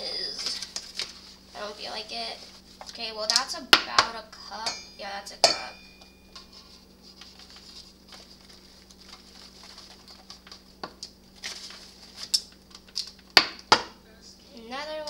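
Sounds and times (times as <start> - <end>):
paper bag crinkling: 0.1 - 1.5, 7.1 - 13.0.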